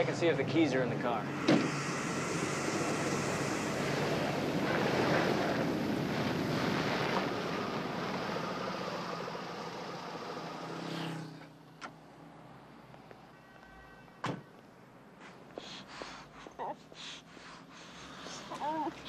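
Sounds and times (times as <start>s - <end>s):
vehicle engine running: 0.0s - 11.3s
tyres rolling on pavement: 2.3s - 10.9s.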